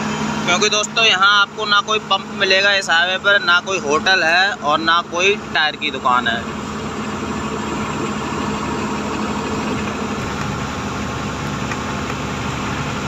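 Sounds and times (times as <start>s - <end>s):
road noise: 0.0s - 13.0s
truck engine hum: 0.0s - 13.0s.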